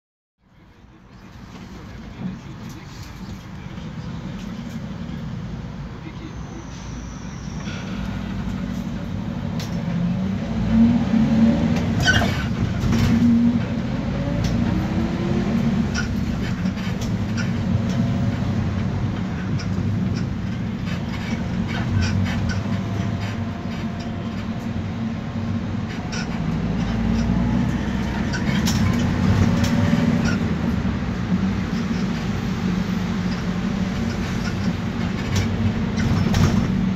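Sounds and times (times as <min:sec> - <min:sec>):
engine and road rumble: 0:00.4 - 0:36.9
underbody squeaks and clicks: 0:12.0 - 0:13.2.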